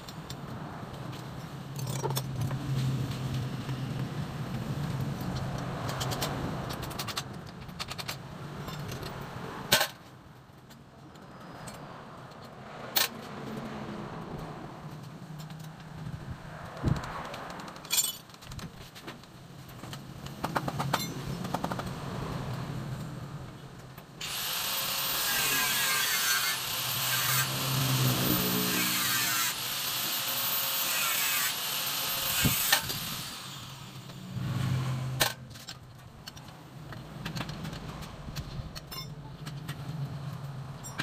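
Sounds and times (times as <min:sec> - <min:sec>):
electric power tool motor: 0:24.2 - 0:34.2.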